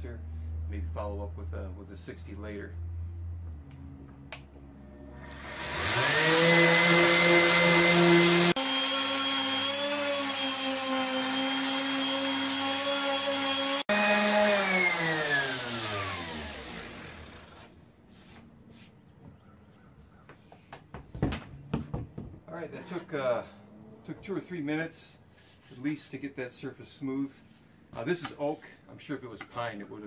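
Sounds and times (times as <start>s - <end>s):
orbital sander whining: 5.0s - 17.8s.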